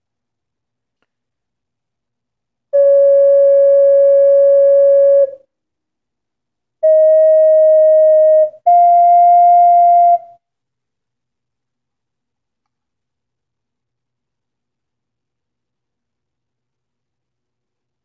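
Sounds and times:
ocarina long held notes: 0:02.8 - 0:05.4, 0:06.8 - 0:10.2.

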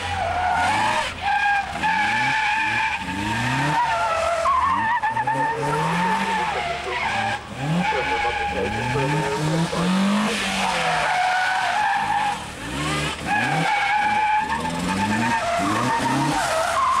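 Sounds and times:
car engine revving: 0:00.0 - 0:17.0
tyres squealing: 0:00.1 - 0:12.4.

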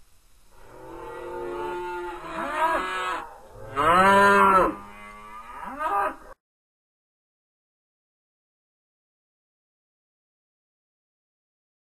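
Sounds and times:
cattle mooing: 0:00.6 - 0:06.4.

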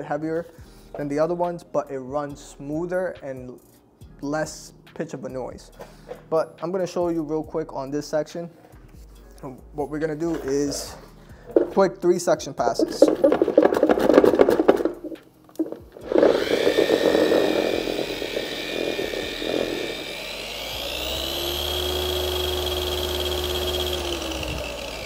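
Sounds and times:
pad scrubbing in bucket: 0:12.8 - 0:19.8
polisher motor whine: 0:13.0 - 0:25.0.

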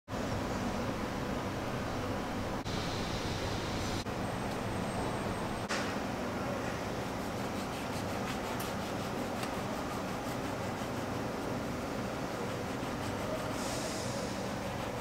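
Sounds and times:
steady background hiss: 0:00.1 - 0:15.0
knife sawing through crust: 0:07.4 - 0:11.1, 0:12.4 - 0:13.6, 0:14.2 - 0:15.0.

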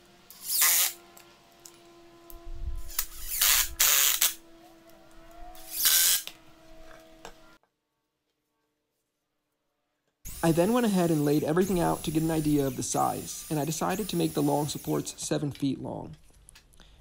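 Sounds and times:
impact driver driving screws: 0:00.3 - 0:01.0, 0:02.9 - 0:04.4.

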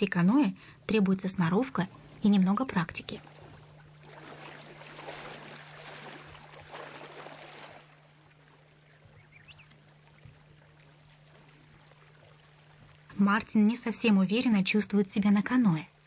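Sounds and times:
water lapping against canoe hull: 0:01.8 - 0:14.5.

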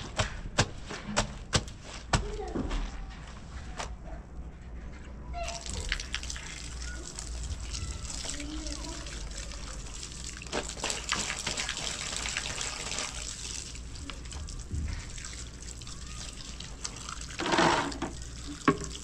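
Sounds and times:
tap water running onto concrete: 0:00.0 - 0:02.6, 0:05.4 - 0:19.0
clothes rinsed and wrung: 0:00.0 - 0:04.0, 0:05.4 - 0:19.0.

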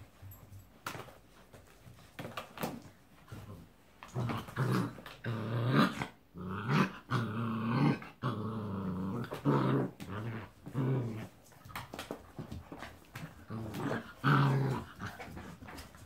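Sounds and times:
paws clicking on wooden floor: 0:00.0 - 0:04.4, 0:10.0 - 0:16.0
puppies growling: 0:03.3 - 0:16.0.

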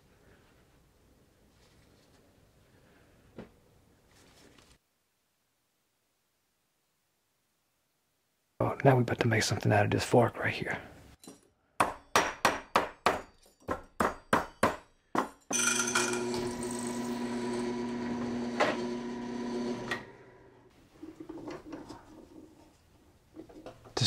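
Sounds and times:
drill press boring metal: 0:15.5 - 0:20.6.

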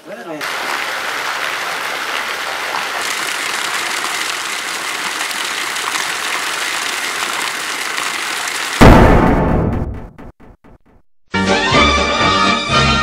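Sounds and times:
fountain water splashing: 0:00.4 - 0:08.8.

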